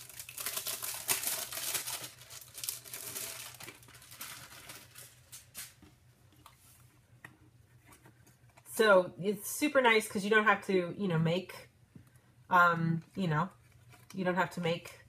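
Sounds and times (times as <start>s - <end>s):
plastic packaging crinkling: 0.0s - 5.9s.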